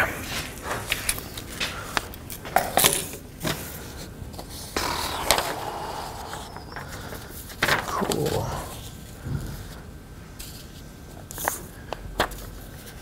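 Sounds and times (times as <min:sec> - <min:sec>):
paper rustling and sliding: 0:03.5 - 0:09.8.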